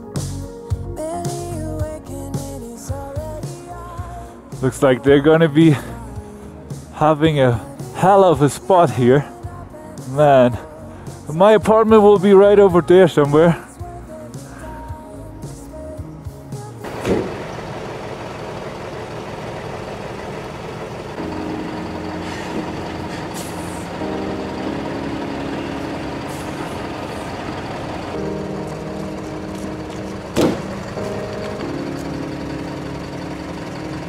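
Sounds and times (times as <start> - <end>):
truck diesel engine running: 16.4 - 34.0
air brake hisses: 22.1 - 24.0, 26.2 - 27.4.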